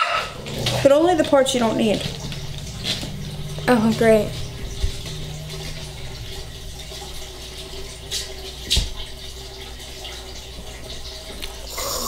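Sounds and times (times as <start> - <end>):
faint constant hum: 0.0 - 12.0.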